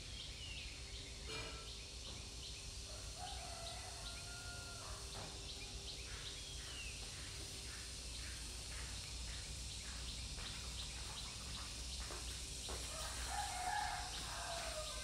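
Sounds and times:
faint rooster crowing: 0:02.8 - 0:05.6, 0:12.7 - 0:15.0.

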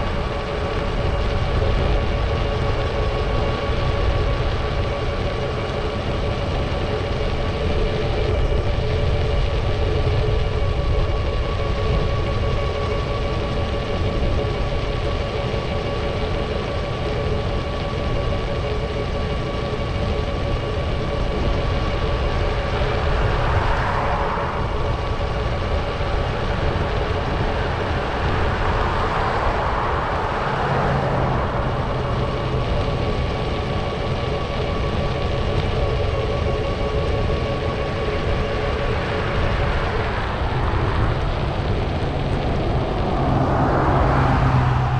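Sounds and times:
constant hum: 0:00.0 - 0:44.9
wind rumble: 0:00.0 - 0:44.9
road noise: 0:15.5 - 0:44.9
passing traffic: 0:21.2 - 0:35.3, 0:38.1 - 0:44.9.

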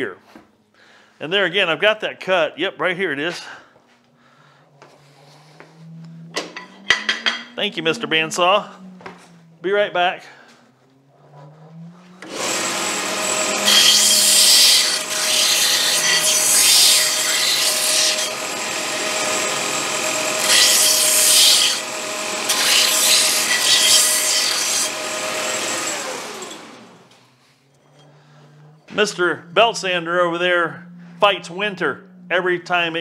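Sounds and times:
belt sander running: 0:11.2 - 0:27.3
metal grinding on sander belt: 0:11.3 - 0:29.2.

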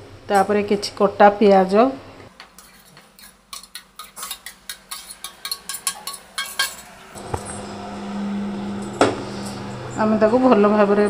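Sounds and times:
steel bowls clinking: 0:02.6 - 0:11.0
steady low hum: 0:06.8 - 0:11.0.

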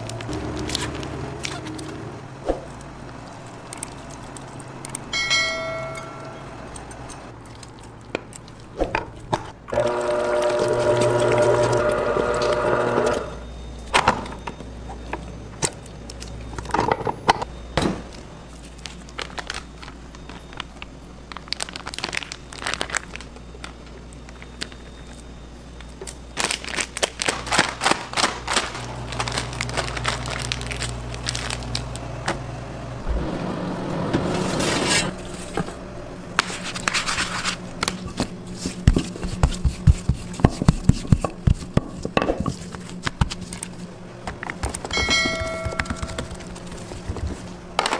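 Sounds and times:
plastic piping bag crinkling: 0:18.5 - 0:32.1.

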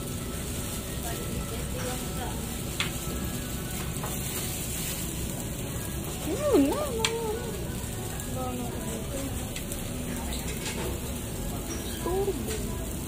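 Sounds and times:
food sizzling: 0:00.0 - 0:13.0.

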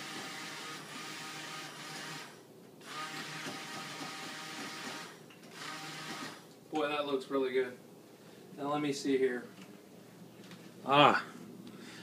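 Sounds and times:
immersion blender motor hum: 0:00.0 - 0:06.4.

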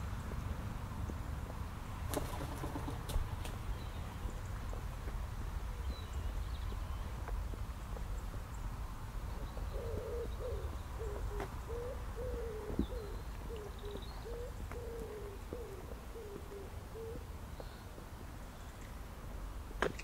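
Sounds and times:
small birds chirping: 0:00.0 - 0:20.0
pigeon cooing: 0:09.7 - 0:17.3.

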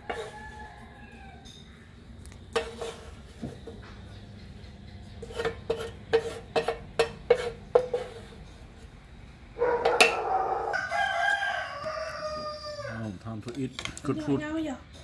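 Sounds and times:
wooden spatula scraping metal pan: 0:00.0 - 0:00.6, 0:02.5 - 0:04.0, 0:05.0 - 0:09.0
rooster crowing: 0:00.0 - 0:01.9, 0:09.6 - 0:13.2.

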